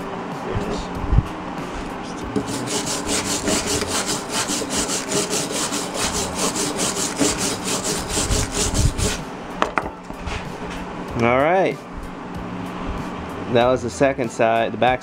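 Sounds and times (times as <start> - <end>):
wire brush scrubbing steel: 2.4 - 9.2.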